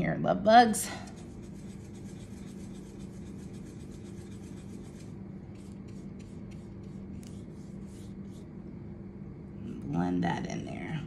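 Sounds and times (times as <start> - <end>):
steady low hum: 0.0 - 11.0
paintbrush scrubbing on paper: 1.0 - 8.6.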